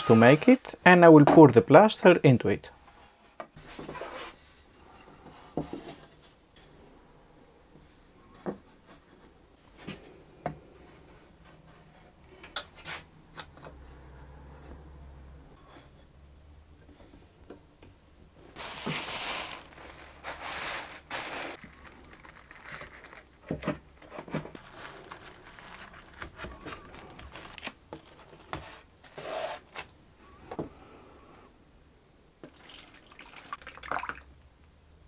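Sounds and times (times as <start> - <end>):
plastic sheet crinkling: 18.6 - 28.5.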